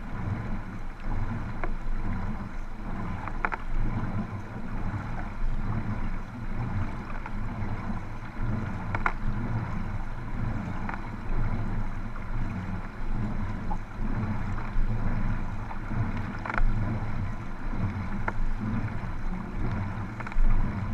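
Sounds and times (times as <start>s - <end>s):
paddle blades splashing: 0.0s - 20.9s
water rushing against kayak hulls: 0.0s - 20.9s.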